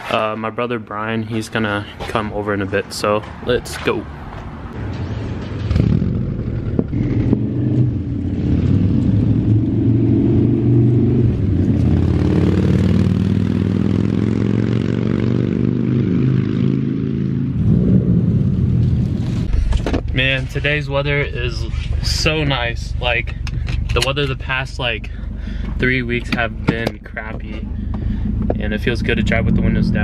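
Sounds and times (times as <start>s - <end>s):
car engine pulling away: 17.1s - 30.0s.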